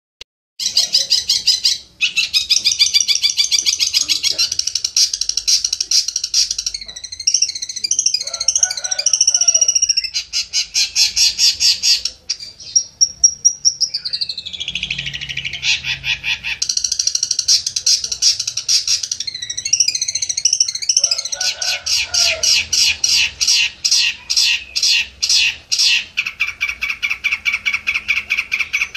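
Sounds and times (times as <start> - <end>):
bird singing rapid trills: 0.6 - 28.9.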